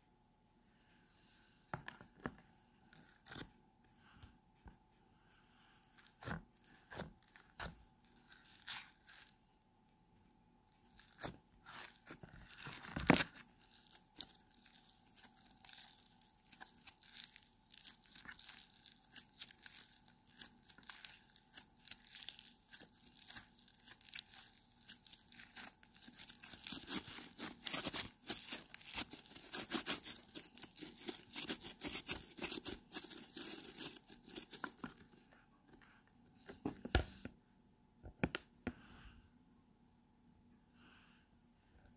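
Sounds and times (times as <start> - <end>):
slime crackling and fizzing: 11.0 - 34.6.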